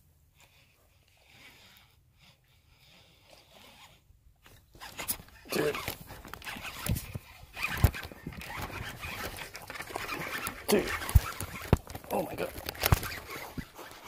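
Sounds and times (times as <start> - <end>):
fishing reel clicking and rattling: 5.0 - 14.0.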